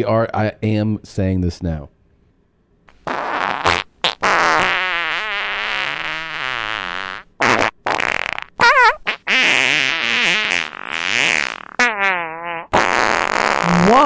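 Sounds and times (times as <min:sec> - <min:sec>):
farting: 0:02.9 - 0:14.0.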